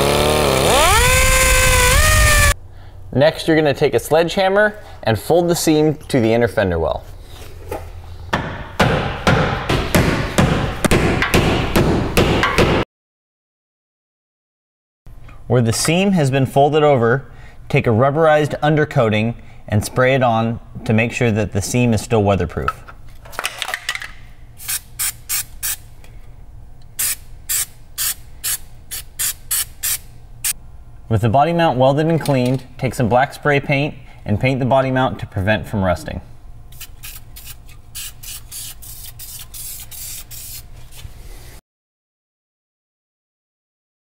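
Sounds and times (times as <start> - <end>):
aerosol can spraying: 36.8 - 40.6.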